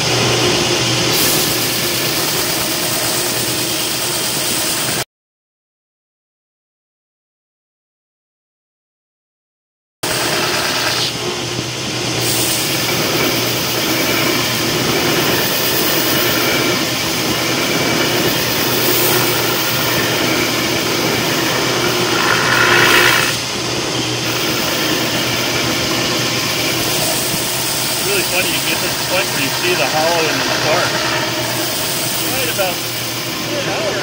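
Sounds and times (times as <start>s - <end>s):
belt sander motor hum: 20.6s - 23.4s.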